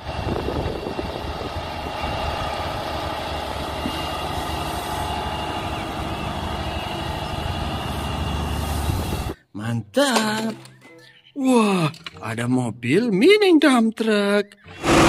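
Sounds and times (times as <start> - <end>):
diesel truck engine idling: 0.8 - 9.4.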